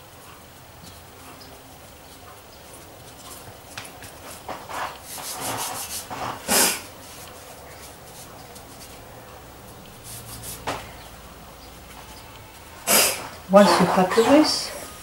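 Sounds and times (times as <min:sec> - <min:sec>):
hands rubbing icing: 0:01.6 - 0:10.9.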